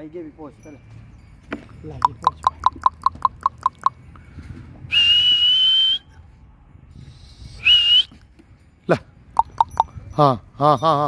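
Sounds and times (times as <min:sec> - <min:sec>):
person clicking tongue: 0:02.0 - 0:04.0, 0:09.4 - 0:09.9
loud high whistle: 0:04.9 - 0:06.2, 0:07.5 - 0:08.2.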